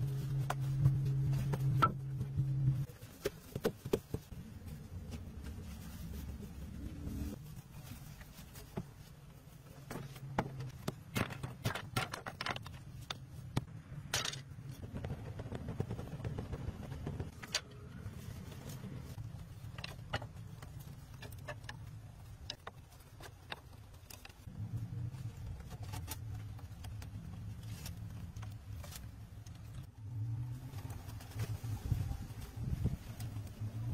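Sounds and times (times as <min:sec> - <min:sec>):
low steady rumble: 0:00.0 - 0:03.2, 0:04.2 - 0:33.9
sticks and wood knocking: 0:09.8 - 0:24.5.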